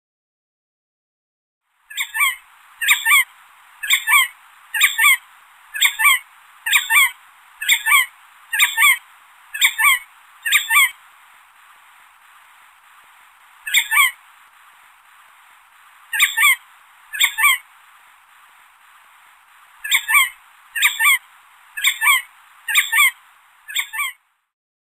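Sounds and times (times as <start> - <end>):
steady background hiss: 1.7 - 24.5
bird double-noted call: 1.9 - 11.0, 13.6 - 14.2, 16.1 - 17.7, 19.8 - 24.2.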